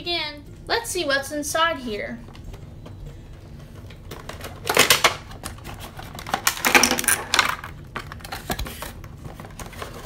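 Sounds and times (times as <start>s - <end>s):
plastic pack rattling: 3.7s - 10.0s.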